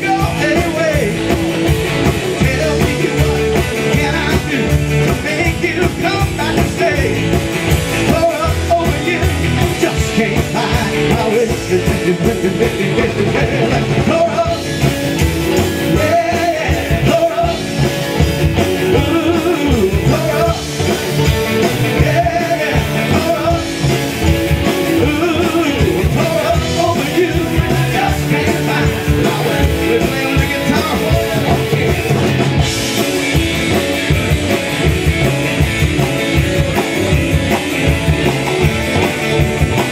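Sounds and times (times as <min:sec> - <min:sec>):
man singing: 0:00.0 - 0:01.4, 0:02.0 - 0:32.4
electric guitars: 0:00.0 - 0:39.9
upright double bass: 0:00.0 - 0:39.9.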